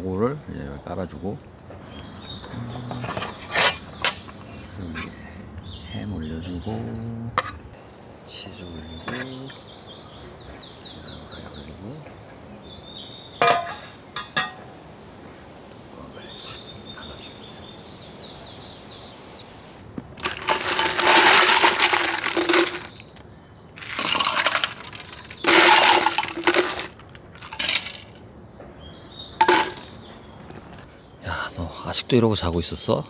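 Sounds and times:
faint bird chirps: 0.0 - 19.9
rustling handling noise: 20.1 - 23.2, 23.8 - 28.1.

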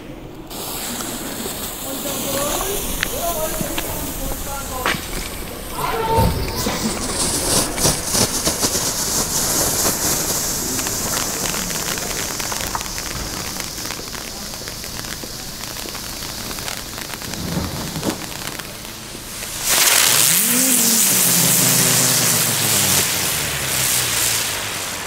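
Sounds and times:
firework fountain hissing and crackling: 0.0 - 25.0
ground spinner whirr: 0.9 - 25.0.

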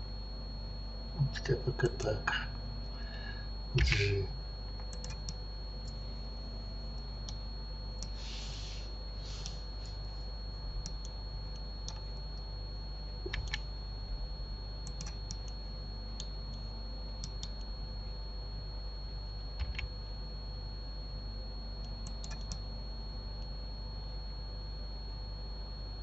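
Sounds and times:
low hum: 0.0 - 18.2
faint high whine: 0.0 - 26.0
mouse and keyboard clicks: 13.3 - 13.6.

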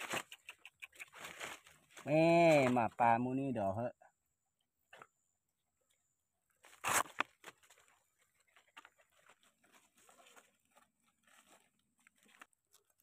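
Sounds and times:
rustling scrape: 1.0 - 2.0, 6.6 - 12.5.

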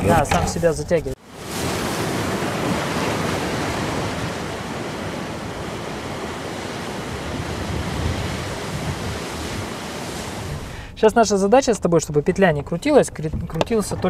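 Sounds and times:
rush of wind and water: 1.2 - 11.0
wind rumbling on microphone: 1.3 - 10.8.

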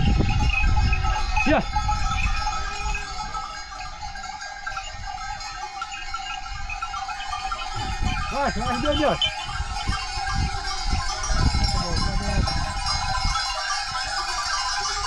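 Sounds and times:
livestock bells jingling: 0.0 - 15.0
goats and sheep bleating: 1.3 - 11.3.

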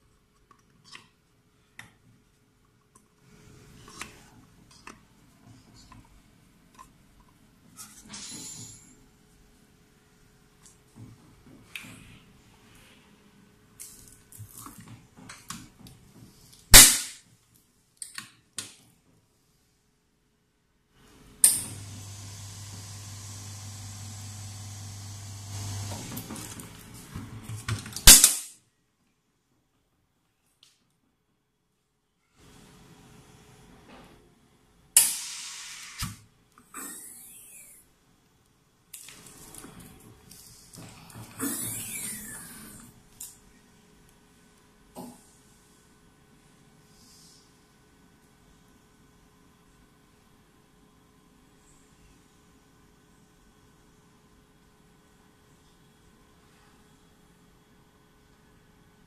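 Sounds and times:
loud sharp bang: 16.8 - 17.2
machine hissing: 21.6 - 26.5, 35.0 - 36.2
loud spray hiss: 35.0 - 36.1.

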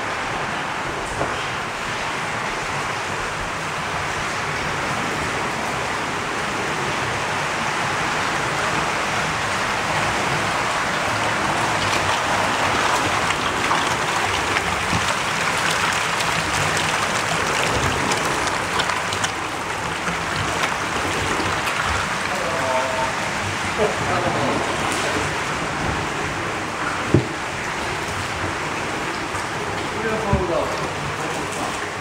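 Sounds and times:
water splashing and churning: 0.0 - 32.0
fish splashing at surface: 11.0 - 25.6.

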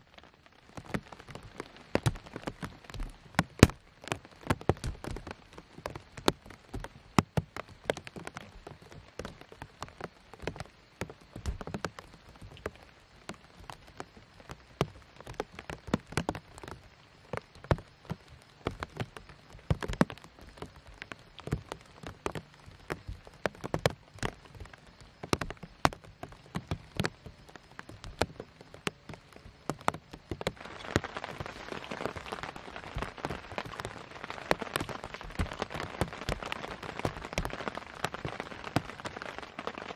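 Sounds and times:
rain drops tapping on tent: 0.0 - 39.9
rain hiss: 0.0 - 39.9.

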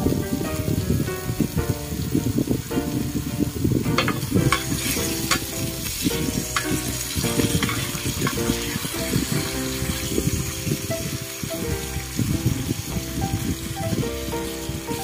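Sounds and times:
chicken sizzling in oil: 0.0 - 15.0
spatula scraping a pan: 4.0 - 8.9.

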